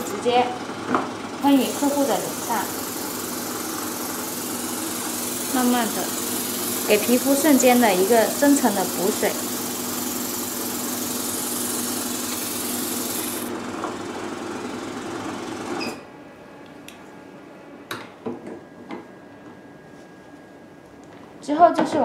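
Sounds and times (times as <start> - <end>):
steady machine hum: 0.0 - 17.9
spray gun hissing: 1.4 - 13.5.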